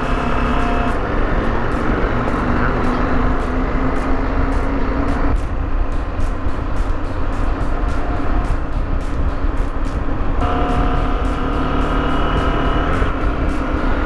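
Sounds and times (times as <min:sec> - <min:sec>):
motorcycle engine cruising: 0:00.0 - 0:14.0
wind rumble on microphone: 0:00.0 - 0:14.0.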